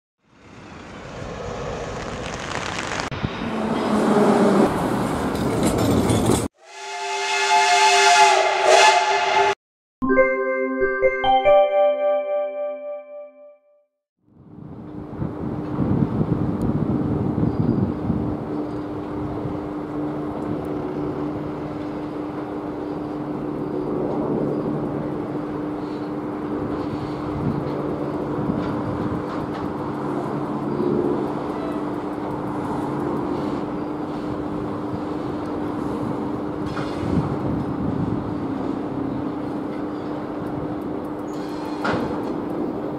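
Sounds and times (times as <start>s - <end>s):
street traffic noise: 0.2s - 6.5s, 14.3s - 42.9s
electric locomotive hum: 0.2s - 9.6s, 14.3s - 42.9s
train running noise: 0.3s - 9.5s, 14.4s - 42.9s
steam locomotive whistle: 6.6s - 9.6s.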